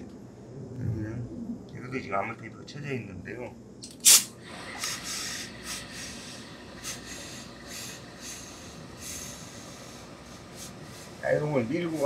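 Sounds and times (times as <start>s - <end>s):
steam iron hissing: 4.0s - 12.0s.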